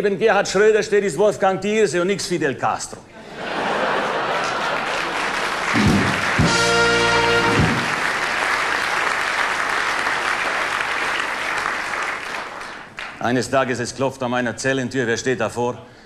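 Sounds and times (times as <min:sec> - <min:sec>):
audience applauding: 0:03.7 - 0:13.2
short brass chord: 0:05.8 - 0:08.1.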